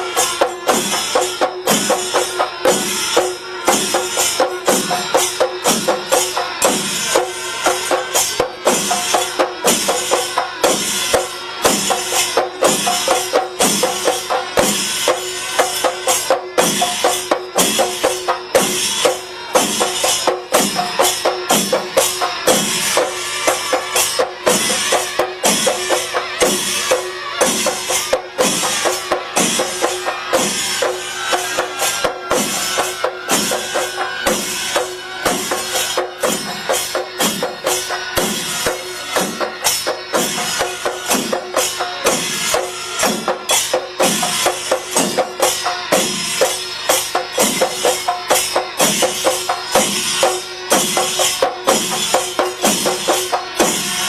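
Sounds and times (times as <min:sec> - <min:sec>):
drums struck with sticks: 0:00.0 - 0:54.0
hand cymbals clashing: 0:00.0 - 0:54.0.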